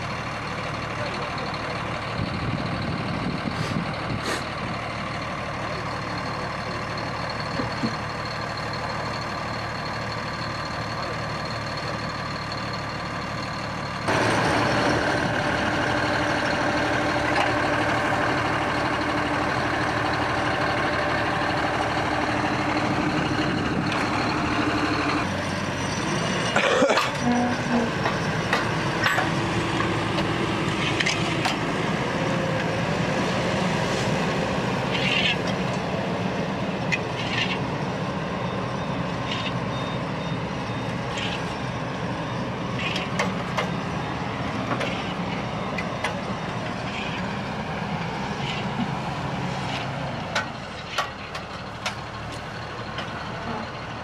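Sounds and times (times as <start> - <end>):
diesel engines under load: 0.0 - 54.0
sharp knocks and clanks: 28.0 - 30.3.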